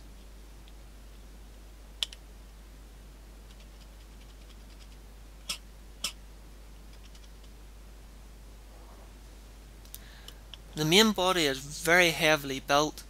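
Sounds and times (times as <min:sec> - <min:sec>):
small plastic clicks: 0:02.0 - 0:02.2
faint ticks: 0:09.8 - 0:10.7.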